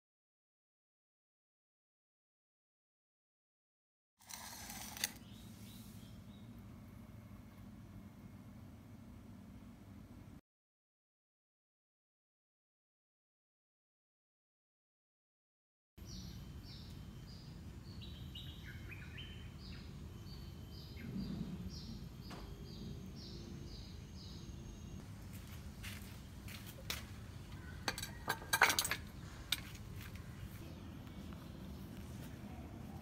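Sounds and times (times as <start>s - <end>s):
low background hum: 4.3s - 10.4s, 16.0s - 33.0s
bird chirping: 16.0s - 25.0s.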